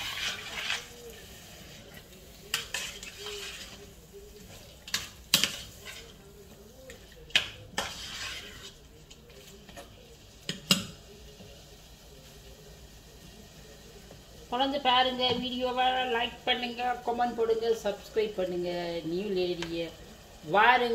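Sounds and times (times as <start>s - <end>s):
spoon stirring thick curry: 0.0s - 11.6s.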